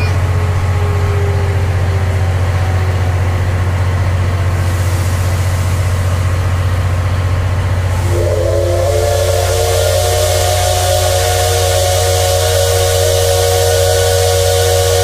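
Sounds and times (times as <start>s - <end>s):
steam train mechanical hum: 0.0s - 15.0s
steam hiss: 4.4s - 15.0s
steam locomotive whistle: 7.8s - 15.0s.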